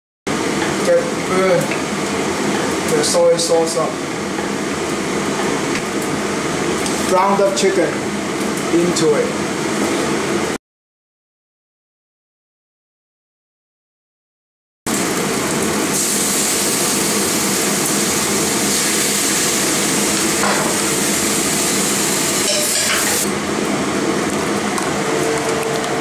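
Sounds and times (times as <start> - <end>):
chicken sizzling in a frying pan: 14.9 - 23.3.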